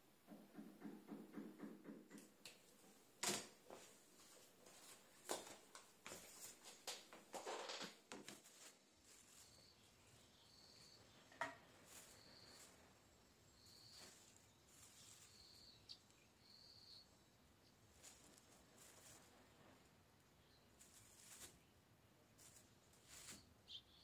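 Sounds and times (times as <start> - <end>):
plastic bag rustling: 7.4 - 9.8.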